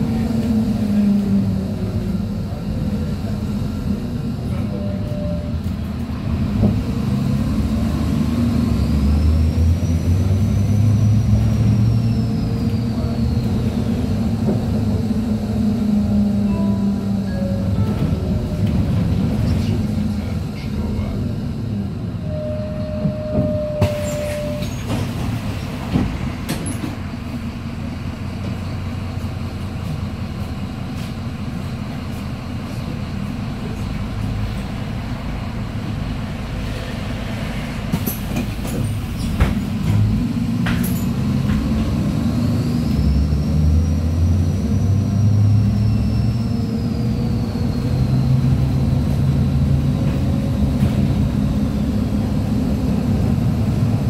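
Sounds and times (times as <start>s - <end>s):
bus engine idling and pulling away: 0.0s - 54.0s
bus doors clunking: 11.2s - 21.3s, 23.0s - 27.5s, 37.6s - 42.2s.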